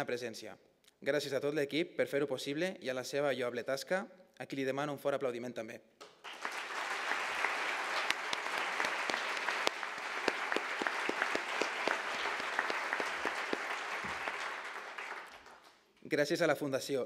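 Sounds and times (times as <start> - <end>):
single sharp claps: 6.0 - 15.8
audience applauding: 6.2 - 15.8.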